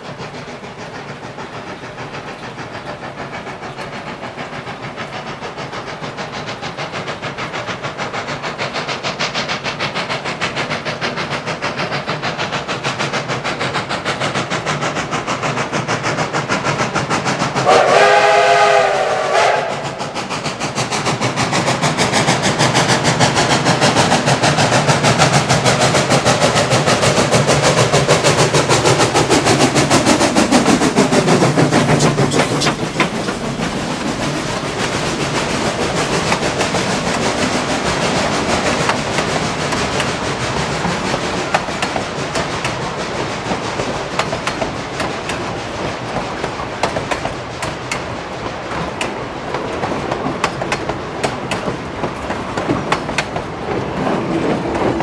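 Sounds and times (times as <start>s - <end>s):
steam engine clatter and hiss: 0.0s - 55.0s
steam locomotive whistle: 17.6s - 20.2s.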